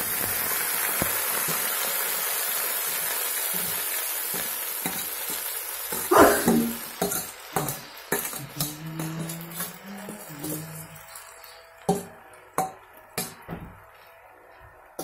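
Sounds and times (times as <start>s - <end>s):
vegetables sizzling in oil: 0.0s - 13.5s.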